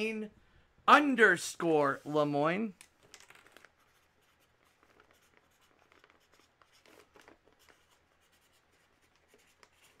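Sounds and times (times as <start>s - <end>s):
marker scratching on plastic: 3.4s - 10.0s.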